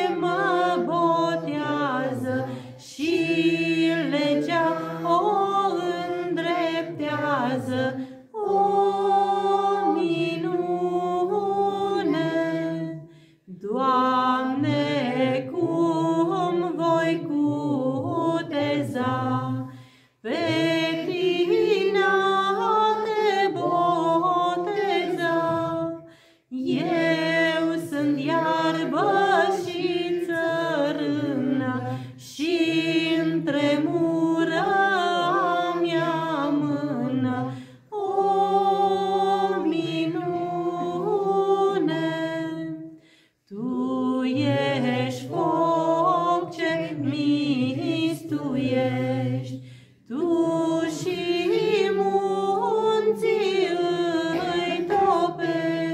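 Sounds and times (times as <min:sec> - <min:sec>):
woman singing unaccompanied: 0:00.0 - 0:19.6, 0:20.2 - 0:42.8, 0:43.5 - 0:49.2, 0:50.1 - 0:55.9.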